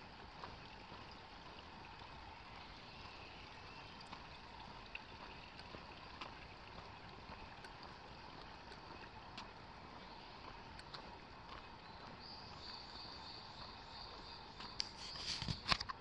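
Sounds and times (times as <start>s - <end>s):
small stream trickling: 0.0s - 16.0s
light ticks: 4.0s - 9.6s, 10.5s - 12.8s, 13.6s - 16.0s.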